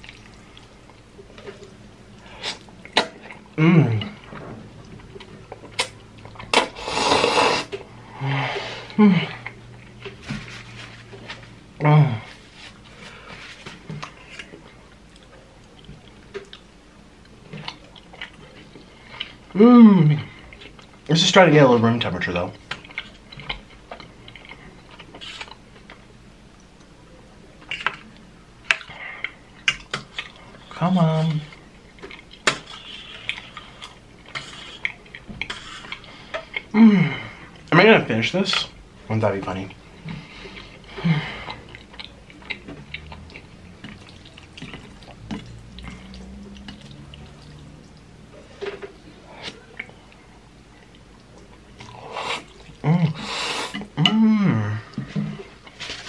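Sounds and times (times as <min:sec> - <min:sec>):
person chewing rice cakes: 0:00.0 - 0:08.0, 0:08.8 - 0:19.6, 0:22.6 - 0:26.9, 0:27.6 - 0:37.7, 0:39.5 - 0:54.2
loud noodle slurp: 0:06.5 - 0:07.8.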